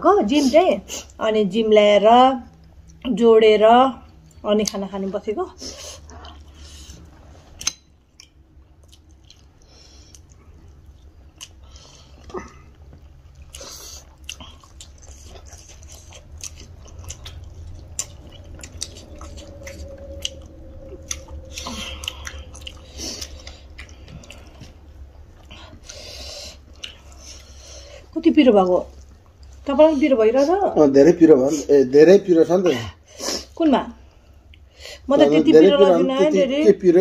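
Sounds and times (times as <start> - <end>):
steady low hum: 0.0 - 37.0
people chewing food: 2.4 - 3.3, 3.9 - 30.6.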